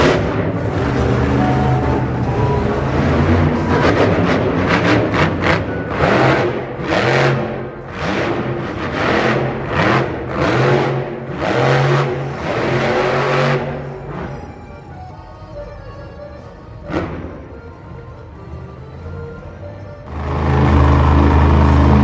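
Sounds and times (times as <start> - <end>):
truck engine revving hard: 0.0 - 14.8, 16.8 - 17.5, 20.1 - 22.0.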